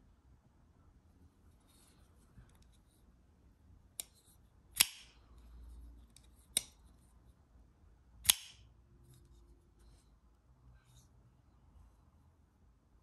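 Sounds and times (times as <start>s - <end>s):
folding knife blade snapping open: 4.8s - 5.1s, 8.2s - 8.6s.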